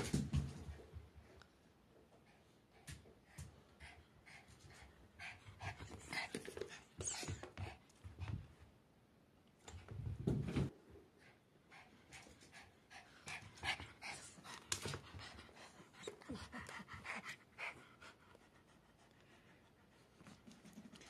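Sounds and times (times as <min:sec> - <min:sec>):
dog panting heavily: 0:02.2 - 0:08.6, 0:11.2 - 0:21.0.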